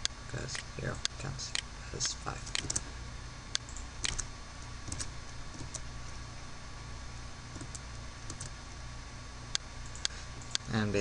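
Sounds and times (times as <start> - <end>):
mouse and keyboard clicks: 2.5 - 2.8, 4.9 - 5.8.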